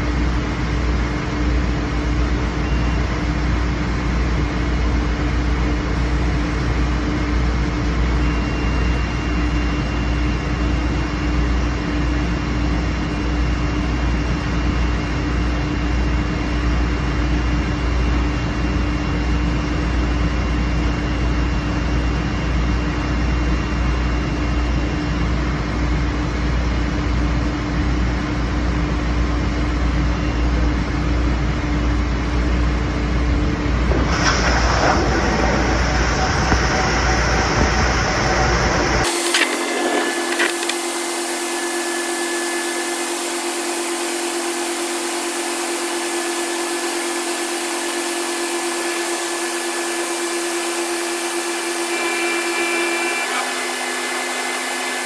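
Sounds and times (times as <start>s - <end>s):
steady whine: 0.0s - 55.0s
grinding machine hum: 30.0s - 55.0s.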